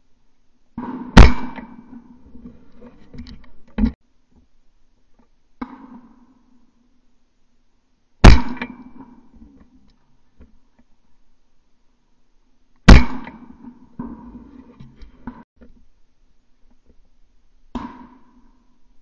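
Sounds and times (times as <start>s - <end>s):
shotgun shots: 0.8s - 2.0s, 8.2s - 9.2s, 12.9s - 13.8s.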